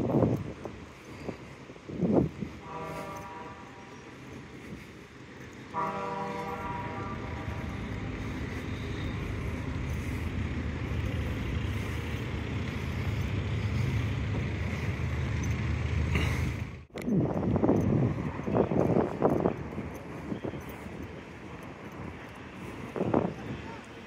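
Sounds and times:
heavy engine rumble: 0:00.0 - 0:24.0
short horn-like tone: 0:02.6 - 0:04.0, 0:05.7 - 0:09.6.

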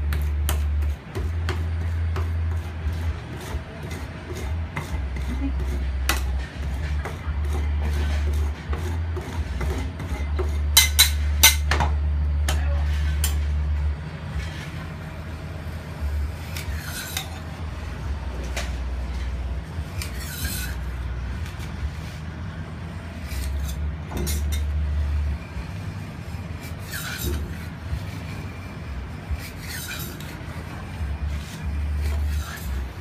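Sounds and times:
low hum: 0:00.0 - 0:33.0
metal spatula scraping steel plate: 0:01.6 - 0:11.7, 0:16.4 - 0:17.6, 0:19.1 - 0:22.2, 0:23.1 - 0:33.0.

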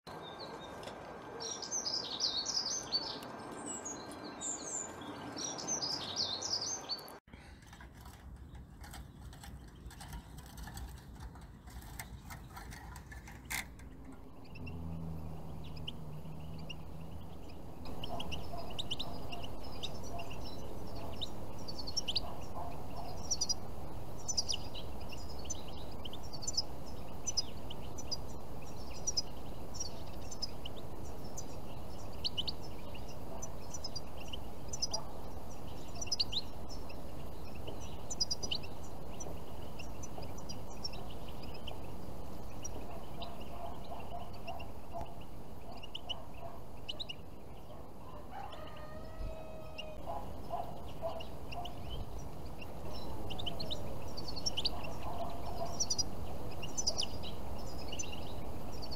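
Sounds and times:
finches twittering: 0:11.8 - 0:58.9.

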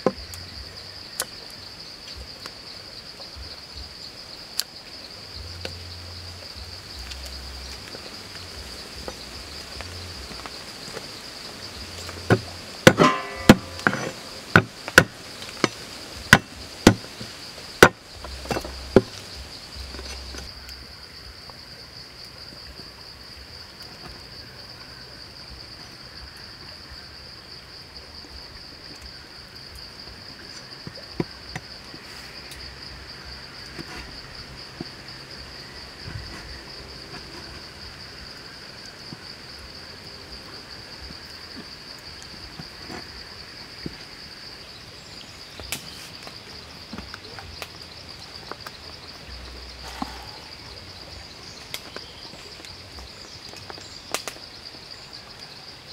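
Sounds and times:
insects droning: 0:00.0 - 0:55.9
cleaver striking chopping board: 0:12.3 - 0:15.1, 0:16.3 - 0:17.1.

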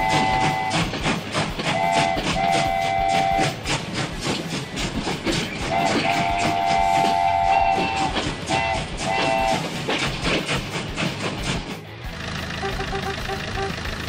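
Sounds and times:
train chime whistle blasts: 0:00.0 - 0:00.9, 0:01.7 - 0:03.6, 0:05.7 - 0:09.6
train wheels clacking on rail joints: 0:00.0 - 0:14.0.

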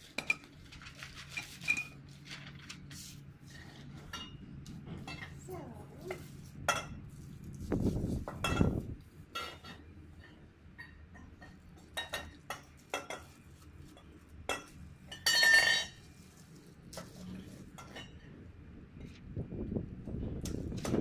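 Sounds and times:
metal clatter on tiled floor: 0:00.0 - 0:02.8, 0:08.2 - 0:09.9, 0:14.5 - 0:16.1
metal tubes knocking and clinking: 0:14.5 - 0:16.0.

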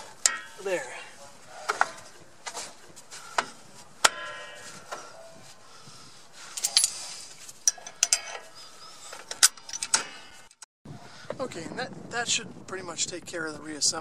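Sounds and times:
metallic clicking and clinking: 0:06.5 - 0:10.6.

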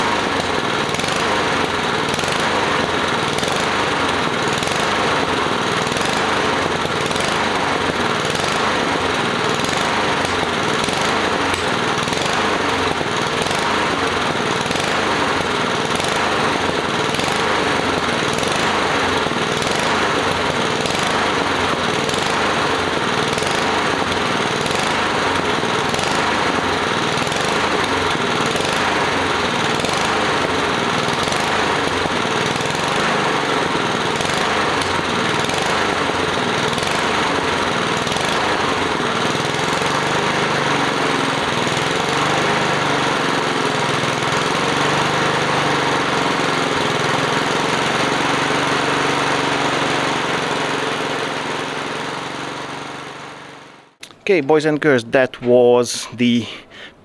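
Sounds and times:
lawn mower engine running: 0:00.0 - 0:54.3.

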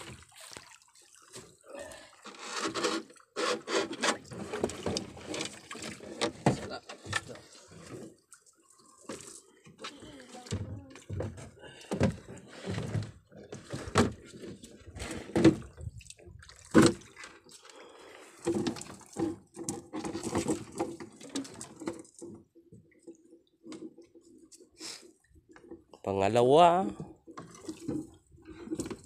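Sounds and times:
water splashing and dripping: 0:00.0 - 0:02.4, 0:04.2 - 0:12.3, 0:13.7 - 0:24.6, 0:27.3 - 0:29.0.

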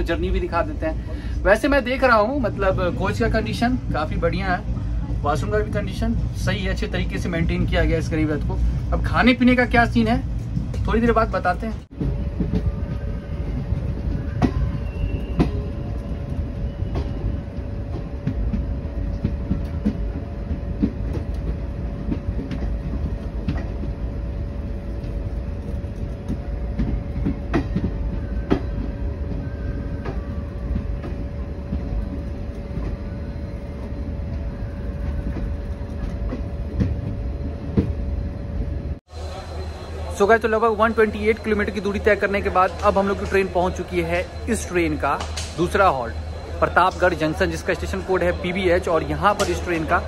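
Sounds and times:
train rumbling along track: 0:00.0 - 0:50.0
wheels clicking and knocking: 0:11.9 - 0:38.0.

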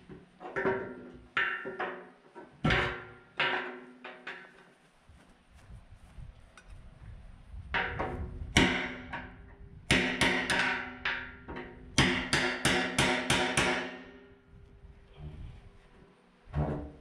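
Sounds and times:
hammer striking steel: 0:08.6 - 0:14.4.

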